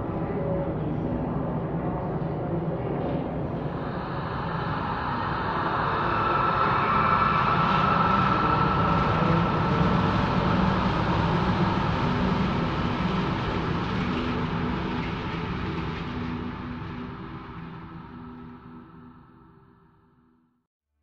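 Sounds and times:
dense rumbling drone: 0.0 - 19.8
steady high tone: 3.3 - 19.7.

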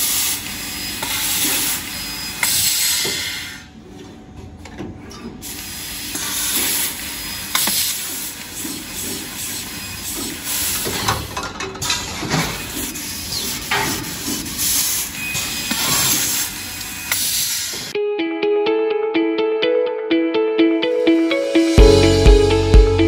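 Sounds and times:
laser cutter gas jet hiss: 0.0 - 3.7, 5.4 - 11.1, 12.4 - 18.0.

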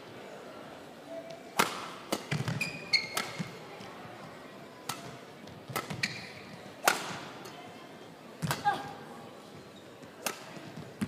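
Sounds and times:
rackets hitting shuttlecock: 1.5 - 3.6, 4.8 - 7.6, 10.1 - 11.0
shoes squeaking on court floor: 2.1 - 3.6, 5.5 - 6.8, 9.4 - 11.0.

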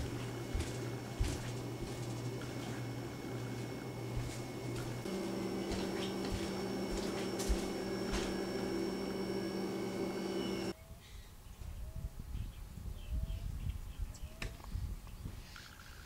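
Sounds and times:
electrical appliance hum: 0.0 - 10.8
faint rising chirps: 3.9 - 10.8.

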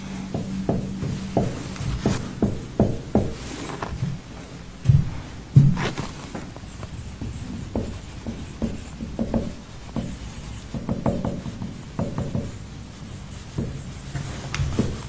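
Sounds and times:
low steady hum: 0.0 - 15.0
marker scratching on whiteboard: 5.8 - 15.0.

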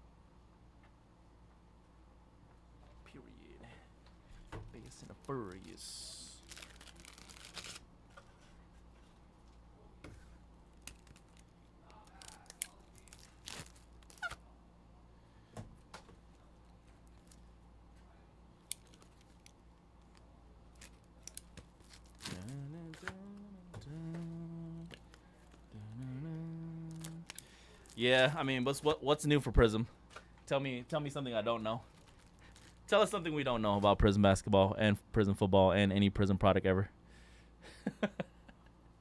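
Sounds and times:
man humming: 22.2 - 25.0, 25.6 - 27.4.

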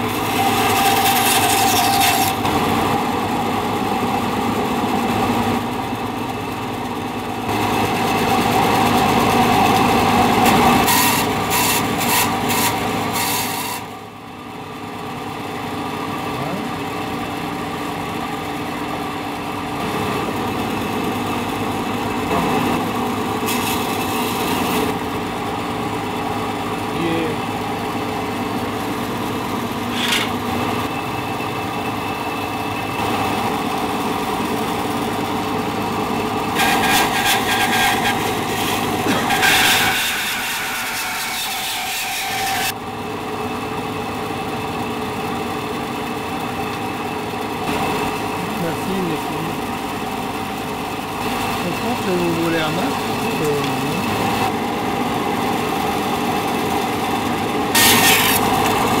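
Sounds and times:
band saw motor hum: 0.0 - 59.0
saw blade rasping through wood: 0.1 - 2.5, 7.8 - 13.9, 23.4 - 25.0, 29.8 - 30.4, 36.6 - 42.8, 57.7 - 58.6.

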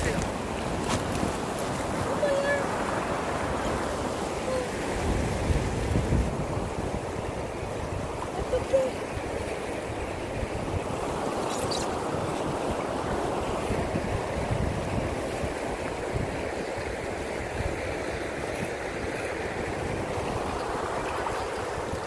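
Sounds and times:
river water rushing over rocks: 0.0 - 22.0.

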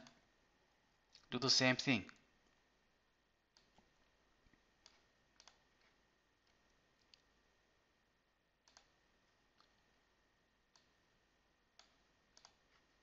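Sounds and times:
computer mouse clicks: 3.5 - 3.9, 4.8 - 7.3, 8.6 - 9.0, 9.6 - 9.8, 10.7 - 11.0, 11.8 - 12.9.

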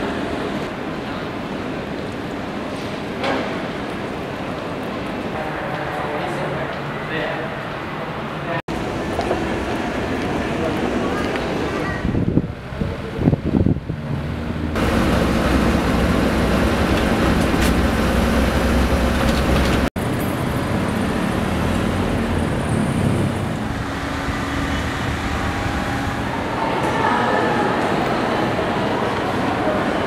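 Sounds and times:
road traffic rumble: 8.2 - 30.0.

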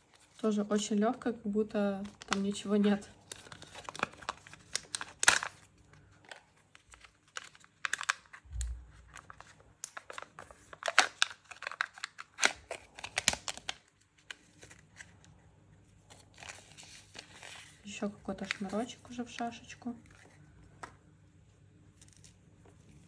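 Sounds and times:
plastic clicks and crackles: 2.0 - 14.8
seal crinkling and tearing: 2.0 - 15.3, 16.0 - 20.9.

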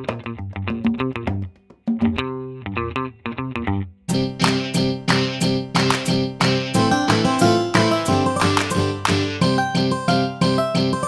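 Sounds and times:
plucked chords music: 0.0 - 11.0.

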